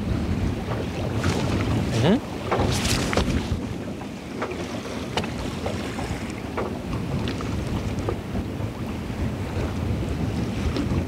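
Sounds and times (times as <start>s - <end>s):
waves washing against boat: 0.0s - 11.0s
wind buffeting microphone: 0.0s - 11.0s.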